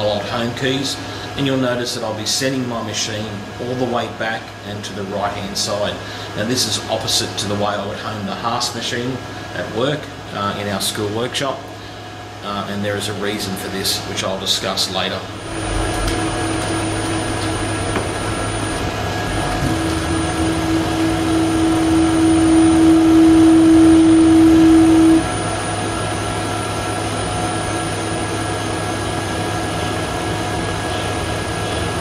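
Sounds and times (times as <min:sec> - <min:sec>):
faint motor hum: 0:00.0 - 0:32.0
loud steady machine whine: 0:00.0 - 0:32.0
stepper motors whining: 0:15.2 - 0:32.0.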